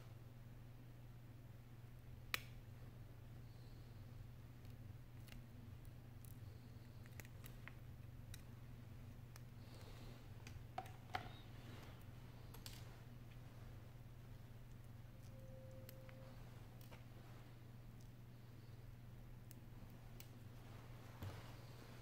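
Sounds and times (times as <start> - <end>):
steady low hum: 0.0 - 22.0
clicks and light taps: 9.2 - 13.7.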